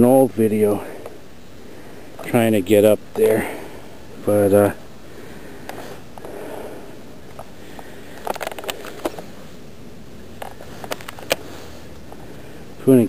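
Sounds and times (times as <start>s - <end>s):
steady hiss: 0.0s - 13.0s
sharp clicks and crackles: 7.3s - 9.3s, 10.4s - 12.2s.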